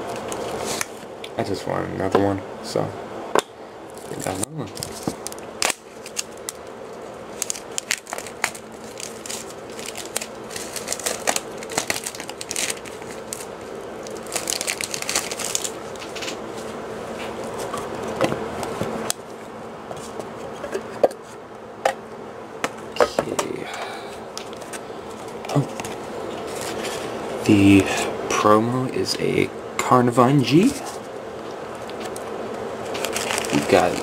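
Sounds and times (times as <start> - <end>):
plastic and card packaging crinkling: 0.0 - 1.0, 3.9 - 18.2, 24.4 - 27.1, 31.8 - 34.0.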